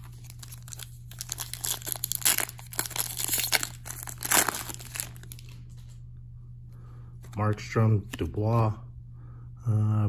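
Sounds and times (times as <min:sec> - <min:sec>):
plastic wrapper crinkling: 0:00.0 - 0:05.8.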